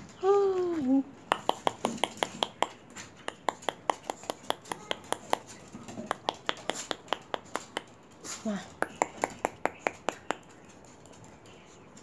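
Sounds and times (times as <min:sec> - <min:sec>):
dog claws clicking on wood: 0:01.3 - 0:08.2.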